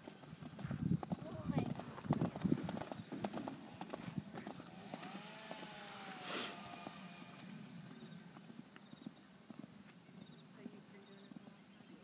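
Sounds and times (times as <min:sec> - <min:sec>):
horse hoofbeats on dirt: 0:00.0 - 0:12.0
short loud hiss: 0:06.1 - 0:06.7.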